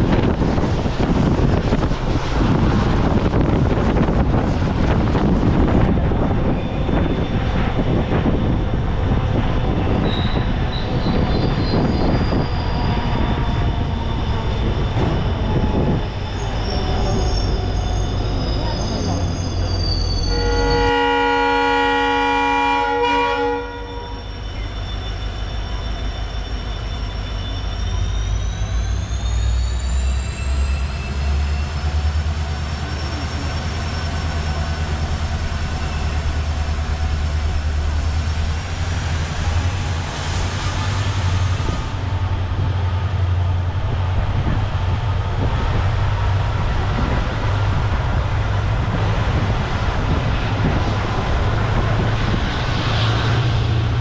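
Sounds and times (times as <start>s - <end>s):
locomotive whine rising in pitch: 0.0s - 21.3s, 23.0s - 54.0s
train rumbling: 0.0s - 54.0s
train horn blast: 20.2s - 24.3s.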